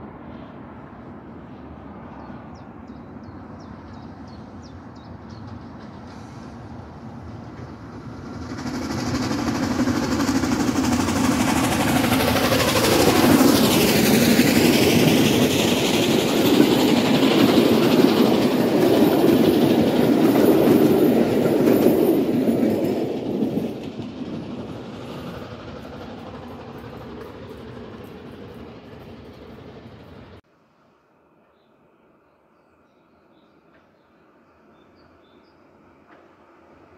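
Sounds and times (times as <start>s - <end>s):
steam locomotive passing: 0.0s - 31.5s, 33.6s - 36.9s
train wheels rolling on rails: 3.3s - 30.4s.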